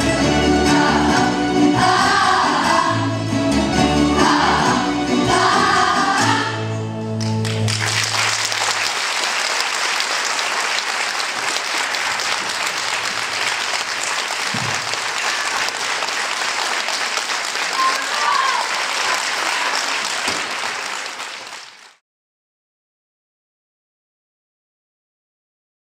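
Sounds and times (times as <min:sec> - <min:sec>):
string orchestra with singing: 0:00.0 - 0:07.2
audience applause: 0:07.2 - 0:22.0.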